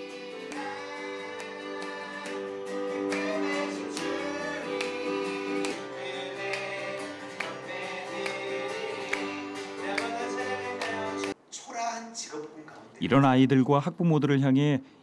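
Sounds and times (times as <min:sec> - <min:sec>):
children singing: 0:00.0 - 0:11.3
instrumental accompaniment: 0:00.0 - 0:11.4.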